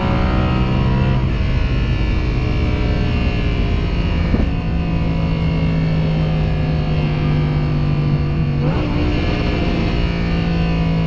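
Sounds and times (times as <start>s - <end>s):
car engine from inside cabin: 0.0s - 11.0s.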